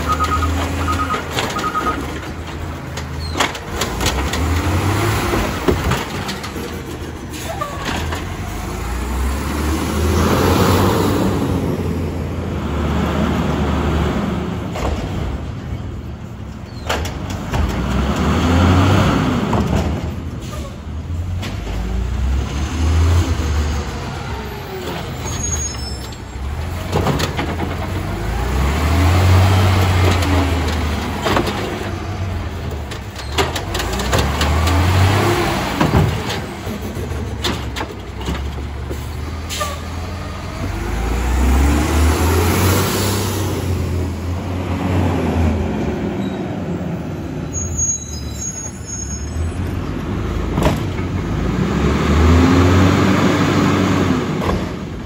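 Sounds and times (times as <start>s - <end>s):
carts clanking: 0.0s - 9.0s
garbage truck diesel engine revving: 0.0s - 15.6s, 17.2s - 25.3s, 26.3s - 47.5s, 49.3s - 55.0s.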